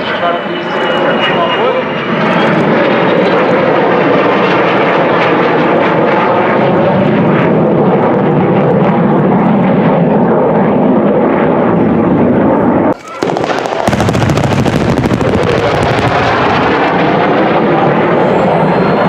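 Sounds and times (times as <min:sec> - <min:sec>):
jet fighter roar: 0:00.0 - 0:19.0.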